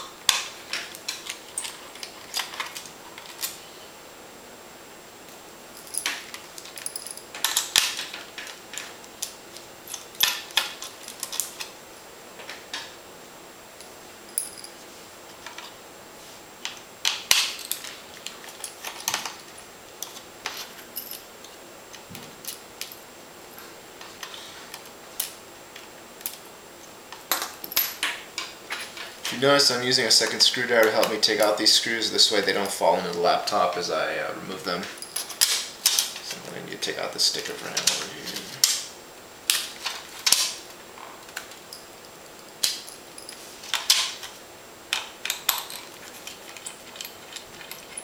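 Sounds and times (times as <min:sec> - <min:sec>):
screws clinking on tile: 0:44.9 - 0:48.0.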